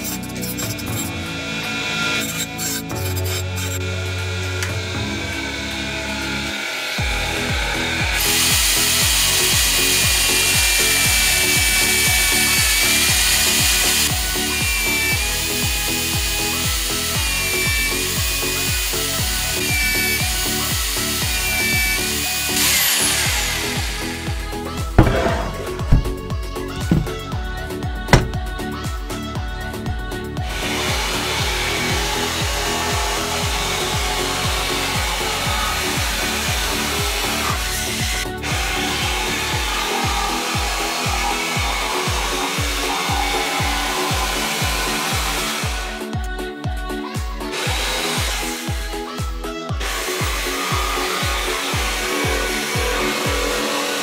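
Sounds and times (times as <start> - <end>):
drill press boring metal: 0.0 - 27.3
jigsaw cutting wood: 0.0 - 28.5, 30.4 - 46.1, 47.5 - 54.0
background music with steady beat: 0.0 - 54.0.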